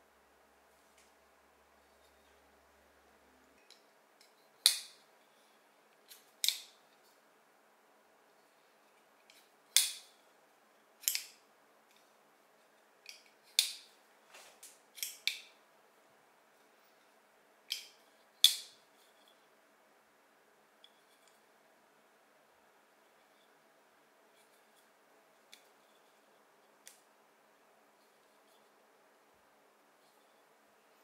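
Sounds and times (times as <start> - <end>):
folding knife clicking open and shut: 4.6 - 5.0, 6.1 - 6.7, 9.8 - 10.1, 11.0 - 11.4, 13.1 - 13.9, 15.0 - 15.5.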